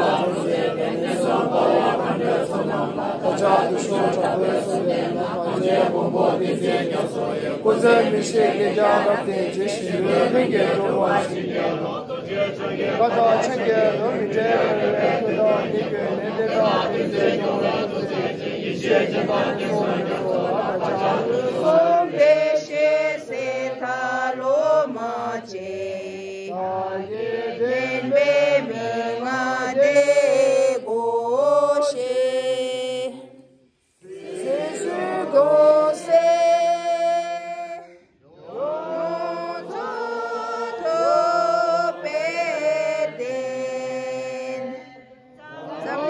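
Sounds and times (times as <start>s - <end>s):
crowd chanting a prayer: 0.0s - 46.0s.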